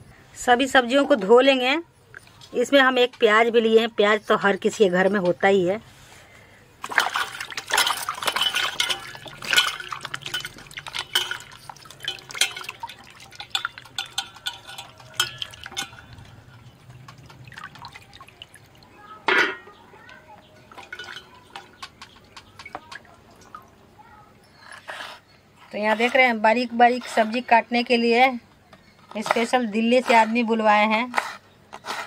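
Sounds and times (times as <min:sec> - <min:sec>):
water splashing in steel bowl: 0:06.8 - 0:23.9.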